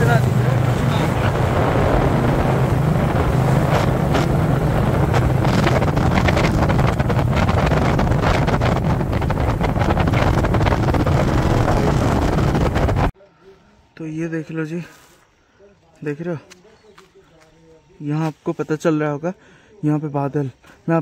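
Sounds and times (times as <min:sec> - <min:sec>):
motorcycle engine running: 0:00.0 - 0:13.1
wind buffeting microphone: 0:00.0 - 0:13.1.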